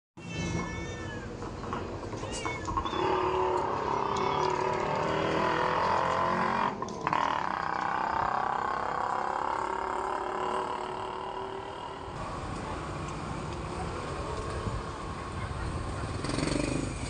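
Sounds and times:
cats meowing: 0:00.2 - 0:04.6
steady background noise: 0:00.2 - 0:17.0.

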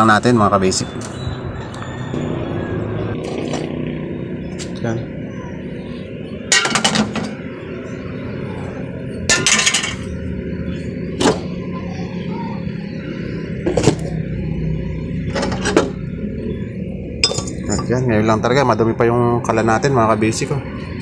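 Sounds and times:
metal stove parts clattering: 0:06.5 - 0:07.4, 0:09.3 - 0:10.1, 0:15.3 - 0:16.0, 0:17.2 - 0:17.9.

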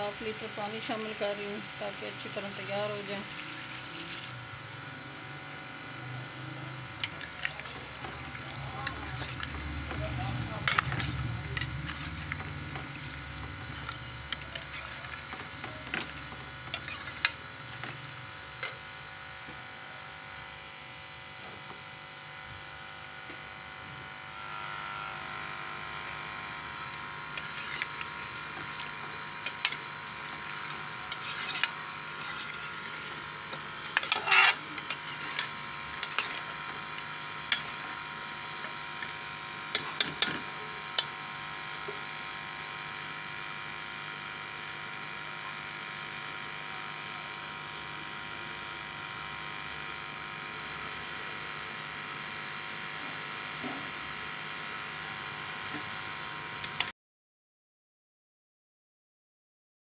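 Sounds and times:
steady hum: 0:00.0 - 0:43.0
metal spoon scraping a metal pot: 0:07.0 - 0:18.0, 0:27.3 - 0:36.6.

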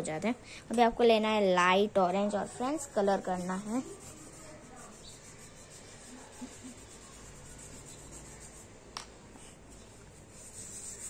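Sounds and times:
pastel scratching on paper: 0:02.6 - 0:08.7, 0:09.4 - 0:11.0.

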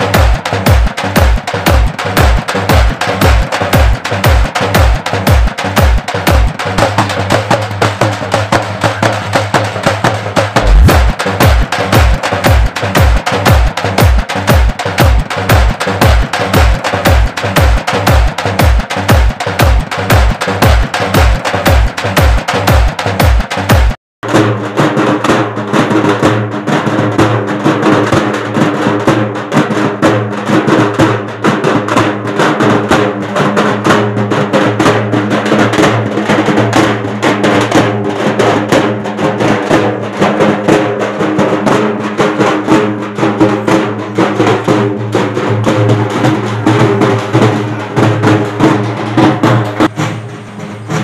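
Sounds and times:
frame drums beaten fast: 0:00.0 - 0:51.0.

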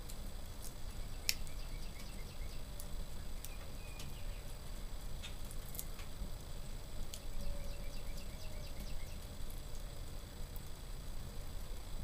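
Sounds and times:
wood fire crackling: 0:00.0 - 0:12.0
faint bird chirps: 0:01.0 - 0:04.6, 0:07.2 - 0:09.4.

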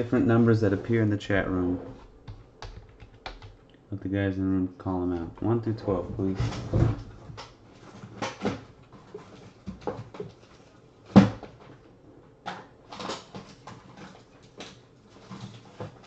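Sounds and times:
objects clattering on a desk: 0:06.4 - 0:11.8.

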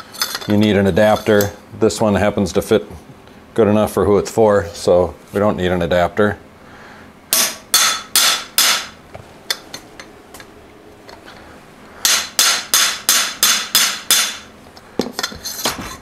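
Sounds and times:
metal tool striking metal: 0:07.3 - 0:09.0, 0:12.0 - 0:14.5.

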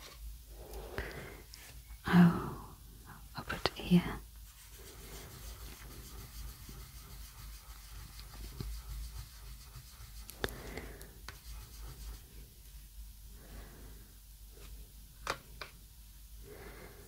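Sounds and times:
pastel scratching on paper: 0:04.4 - 0:12.5.

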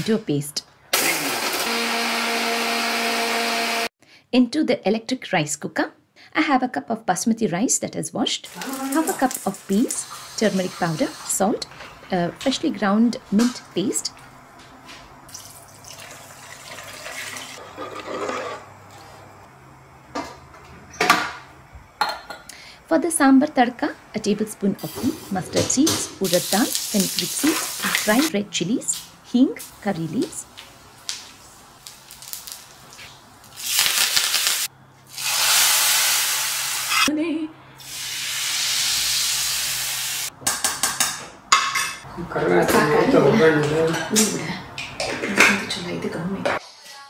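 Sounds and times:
hot oil hissing and sizzling: 0:08.5 - 0:11.5, 0:26.2 - 0:28.3, 0:31.8 - 0:32.9, 0:33.5 - 0:37.1, 0:37.8 - 0:40.3
water pouring into a pot: 0:15.3 - 0:17.6.

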